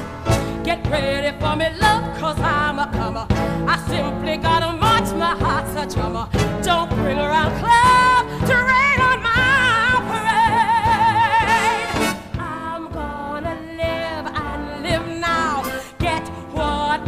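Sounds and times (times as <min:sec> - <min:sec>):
orchestra playing: 0:00.0 - 0:01.2, 0:09.4 - 0:12.6
woman singing: 0:00.5 - 0:17.0.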